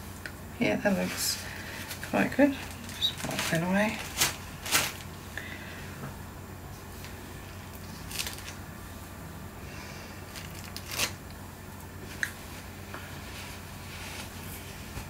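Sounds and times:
low steady hum: 0.0s - 15.0s
hands rustling on paper: 1.0s - 5.1s.

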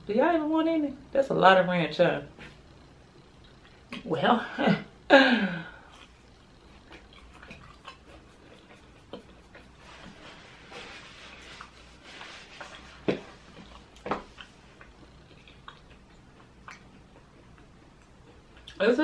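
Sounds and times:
wet chewing: 5.8s - 10.2s, 12.7s - 18.8s.

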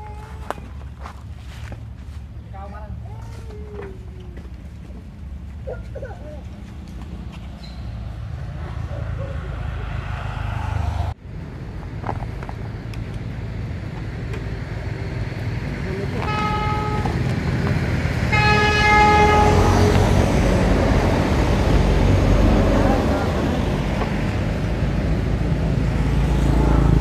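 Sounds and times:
steady low rumble: 7.9s - 14.1s
vehicle horn: 16.2s - 17.4s, 18.3s - 20.1s.

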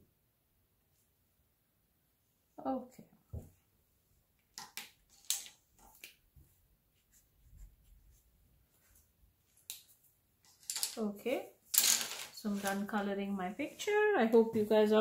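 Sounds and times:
pencils tapping on tabletop: 4.5s - 6.2s, 10.5s - 11.0s, 11.7s - 12.9s.

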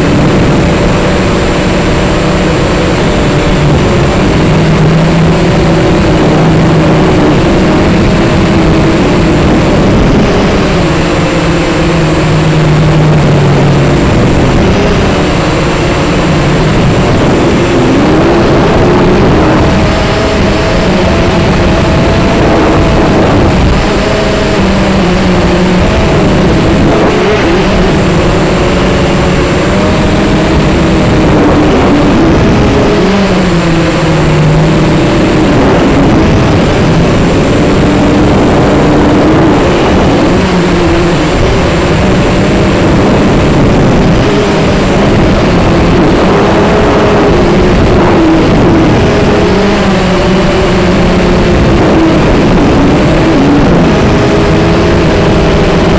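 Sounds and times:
drone propellers whirring: 0.0s - 55.9s.

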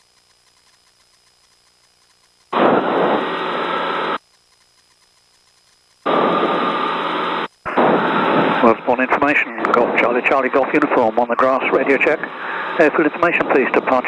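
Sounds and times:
radio hiss bursts: 0.0s - 4.2s, 4.8s - 14.0s.

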